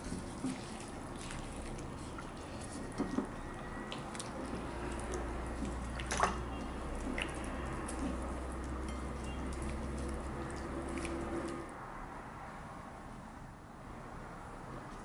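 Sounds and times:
hand kneading raw chicken: 0.0s - 11.7s.

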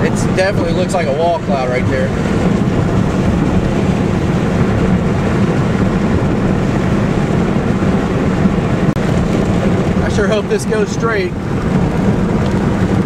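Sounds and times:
car driving on wet road: 0.0s - 13.0s.

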